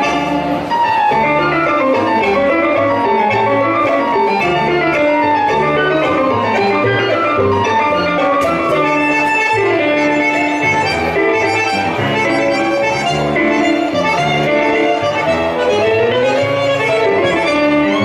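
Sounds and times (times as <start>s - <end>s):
tango on piano violin and bandoneon: 0.0s - 18.0s.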